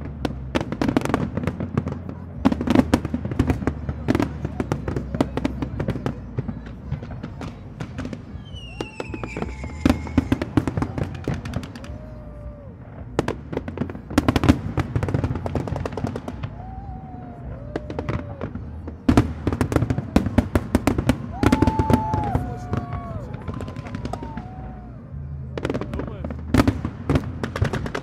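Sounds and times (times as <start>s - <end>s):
fireworks crackling and banging: 0.0s - 28.0s
falling firework whistle: 8.4s - 13.3s, 15.8s - 26.0s.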